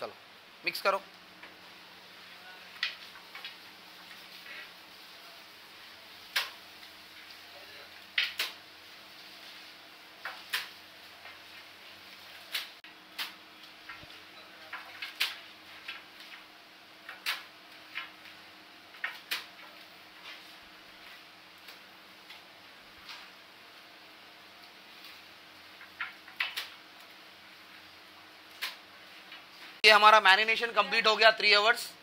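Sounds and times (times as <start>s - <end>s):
wet slaps of meat against pot: 6.3s - 6.6s.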